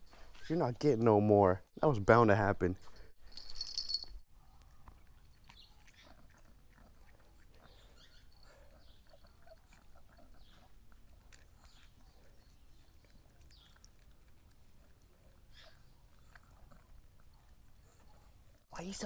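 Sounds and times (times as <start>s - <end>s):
dog licking and lip-smacking: 4.5s - 8.2s, 9.1s - 18.6s.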